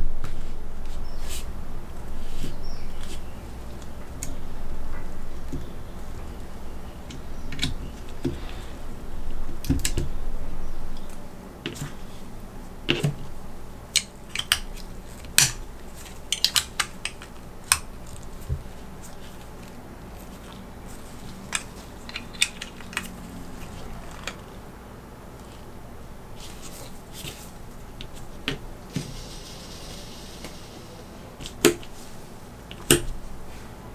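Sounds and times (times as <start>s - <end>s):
gloved hands rubbing plastic: 14.7s - 24.6s, 25.3s - 33.7s
toy parts clicking together: 21.4s - 23.2s.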